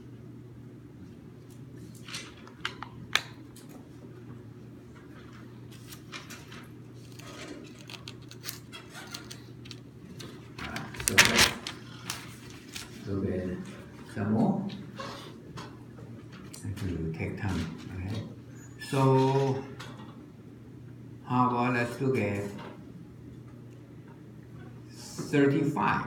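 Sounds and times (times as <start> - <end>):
steady hum: 0.0 - 26.0
paper rustling: 1.8 - 3.0, 5.2 - 13.2.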